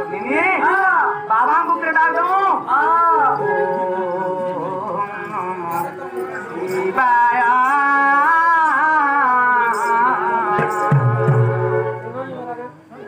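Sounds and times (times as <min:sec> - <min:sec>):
person singing folk song: 0:02.2 - 0:12.0.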